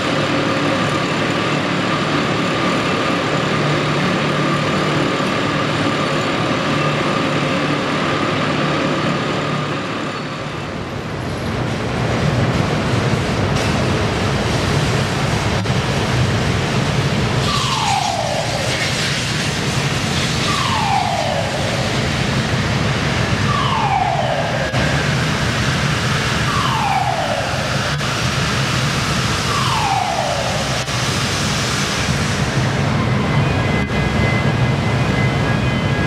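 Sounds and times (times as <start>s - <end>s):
siren-like falling tone: 17.4s - 18.9s, 20.3s - 22.6s, 23.2s - 31.4s.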